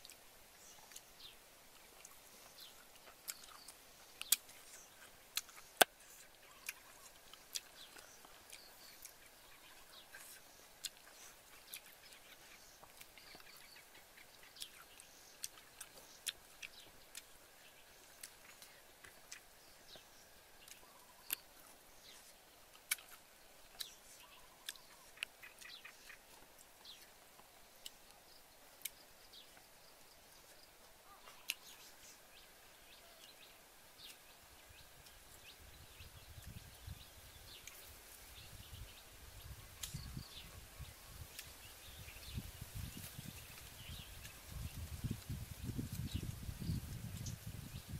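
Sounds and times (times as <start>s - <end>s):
faint bird chirps: 0.0s - 47.9s.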